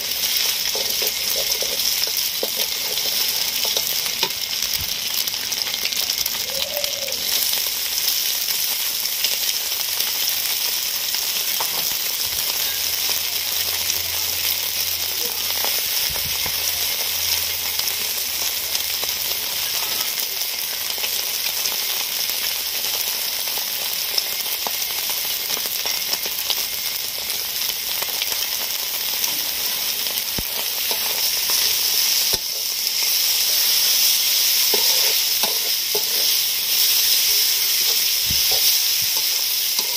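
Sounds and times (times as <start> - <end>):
noodles sizzling in wok: 0.0 - 39.9
metal spatula tossing: 34.3 - 39.9.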